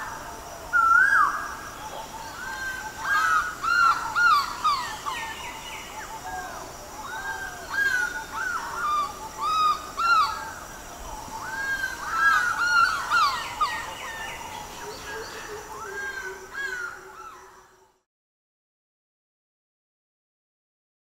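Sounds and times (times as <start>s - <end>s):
other birds: 0.8s - 17.8s
crows cawing: 16.0s - 17.4s.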